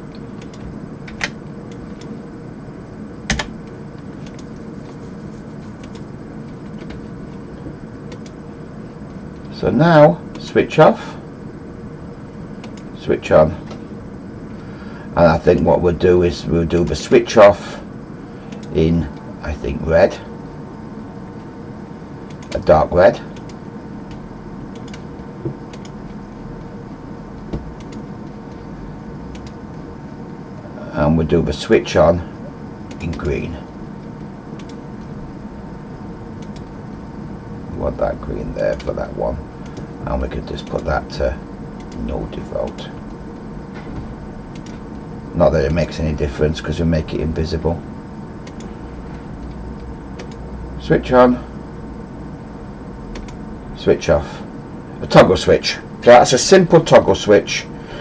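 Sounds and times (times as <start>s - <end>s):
steady background hum: 0.0s - 58.0s
computer mouse clicks: 4.2s - 4.7s, 5.8s - 6.1s, 8.1s - 8.4s, 12.6s - 12.9s, 18.5s - 18.8s, 23.4s - 25.1s, 25.7s - 26.2s, 27.5s - 28.0s, 29.3s - 29.6s, 34.6s - 34.8s, 36.4s - 36.7s, 41.8s - 42.0s, 44.5s - 44.9s, 48.4s - 48.7s, 49.4s - 50.4s, 53.1s - 53.4s.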